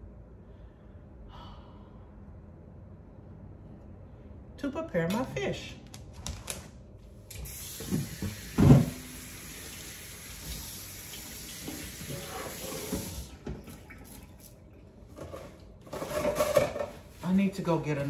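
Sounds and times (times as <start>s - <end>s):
water running from a tap: 7.4s - 14.6s.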